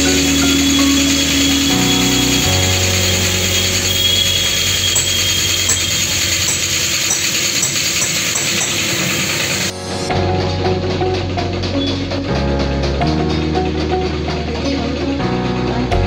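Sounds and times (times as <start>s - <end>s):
paint spray gun hissing: 0.0s - 9.7s
air compressor humming: 0.0s - 12.3s.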